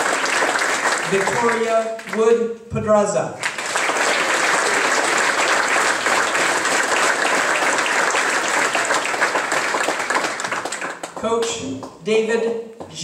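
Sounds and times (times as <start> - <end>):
audience applauding: 0.0 - 2.2, 3.4 - 11.6.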